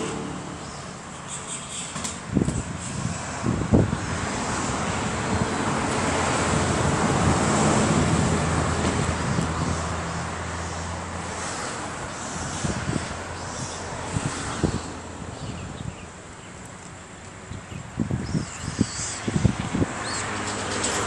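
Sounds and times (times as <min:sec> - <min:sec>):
wind thumps on microphone: 0:02.0 - 0:09.9, 0:12.3 - 0:16.0, 0:17.5 - 0:21.0.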